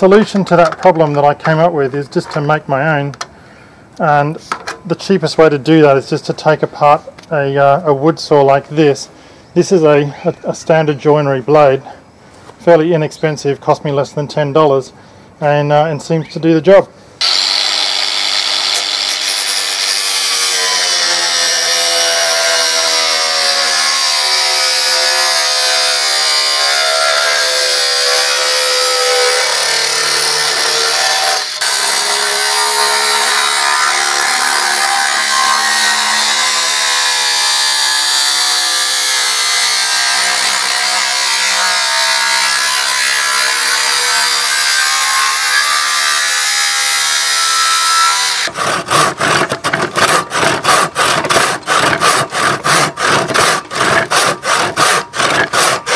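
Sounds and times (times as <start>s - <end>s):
angle grinder cutting steel: 17.2s - 55.9s.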